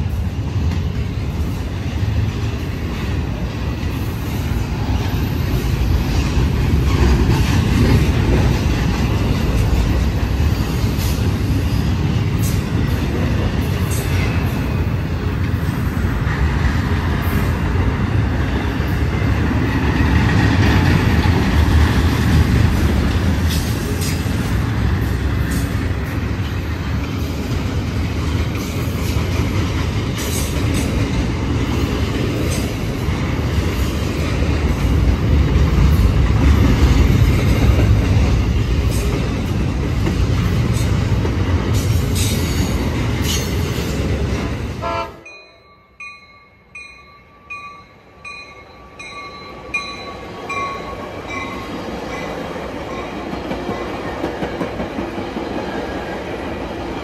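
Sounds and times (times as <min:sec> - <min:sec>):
train rumbling on rails: 0:00.0 - 0:57.0.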